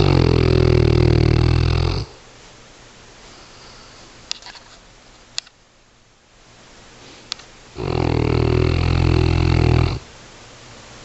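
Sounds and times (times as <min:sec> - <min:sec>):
dog snoring: 0:00.0 - 0:02.2, 0:07.8 - 0:10.1.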